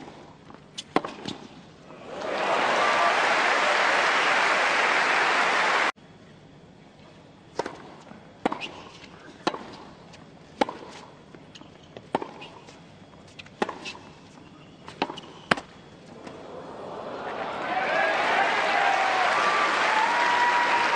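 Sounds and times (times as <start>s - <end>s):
tennis ball struck with rackets: 14.9s - 16.4s.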